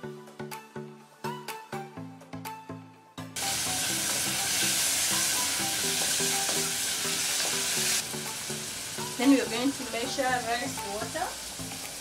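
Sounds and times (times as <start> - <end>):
soft background music: 0.0 - 12.0
vegetables sizzling in oil: 3.4 - 12.0.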